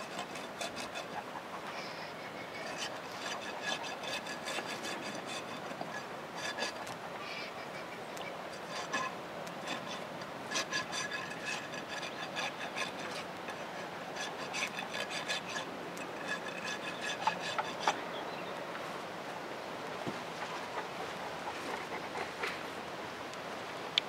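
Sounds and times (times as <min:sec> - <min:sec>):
rasp filing a hoof: 0:00.0 - 0:18.0.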